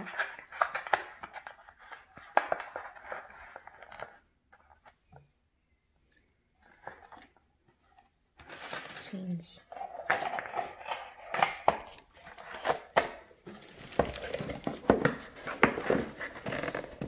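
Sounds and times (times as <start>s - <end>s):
packaging rustling: 6.6s - 17.0s.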